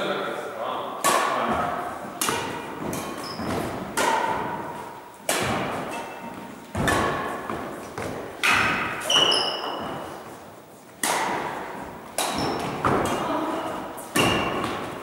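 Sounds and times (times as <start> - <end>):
rackets hitting shuttlecock: 1.0 - 15.0.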